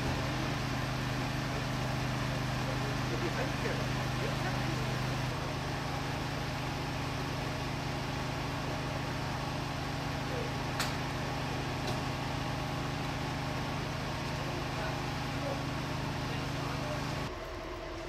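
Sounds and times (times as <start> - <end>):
engine humming: 0.0 - 18.0.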